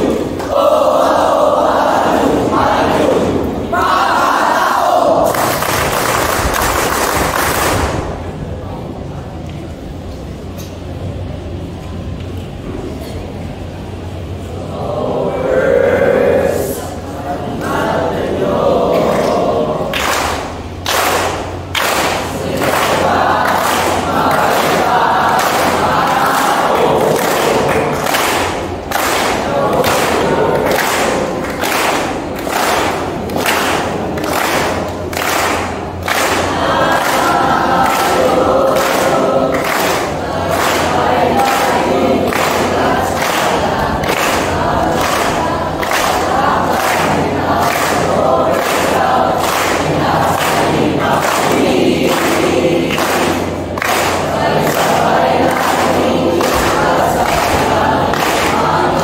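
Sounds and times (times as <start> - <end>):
young voices chanting a cheer: 0.0 - 9.1, 13.8 - 59.0
clapping on a steady beat: 4.5 - 8.2, 18.8 - 59.0.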